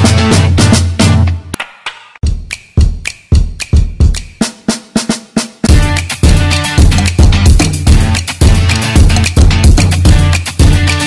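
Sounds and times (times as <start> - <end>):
drums keeping a steady beat: 0.0 - 11.0
sustained bass line: 5.7 - 11.0.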